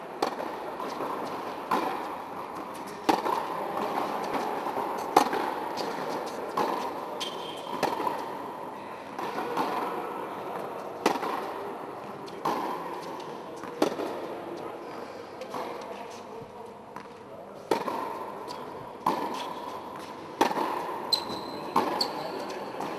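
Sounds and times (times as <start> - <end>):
background noise: 0.0 - 22.9
racket striking tennis ball: 0.2 - 8.5, 9.2 - 11.6, 12.4 - 14.3, 17.7 - 22.9
tennis ball bouncing: 0.2 - 8.6, 9.2 - 11.6, 12.4 - 14.3, 16.9 - 22.9.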